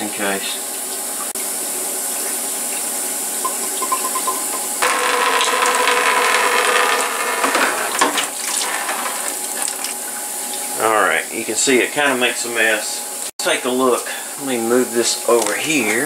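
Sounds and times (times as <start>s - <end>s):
steady background hum: 8.0s - 16.0s
liquid splashing into bucket: 8.2s - 10.7s.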